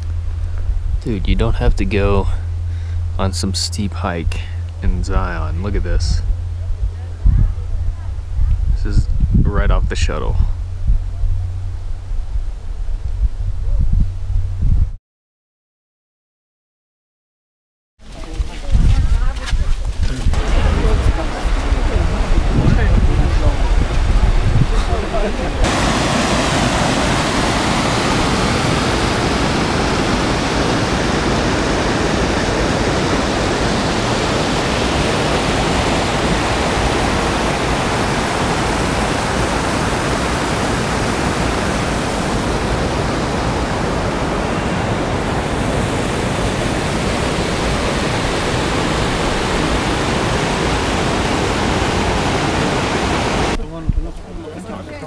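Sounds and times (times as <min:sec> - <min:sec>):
river rushing over rocky rapids: 0:20.4 - 0:53.6.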